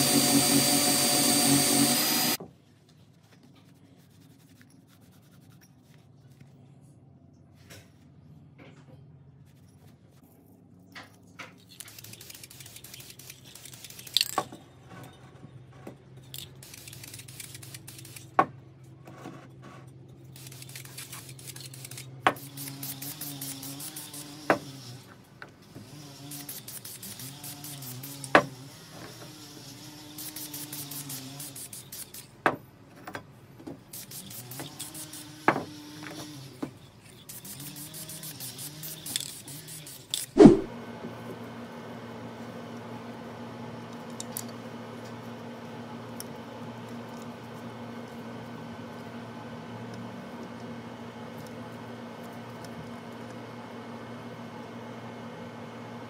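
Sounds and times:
spray paint can hissing: 0:33.9 - 0:35.3, 0:37.3 - 0:40.7.

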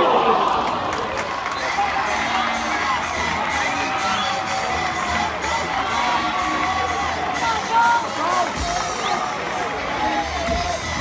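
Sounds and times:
crowd cheering and shouting: 0:00.0 - 0:11.0.

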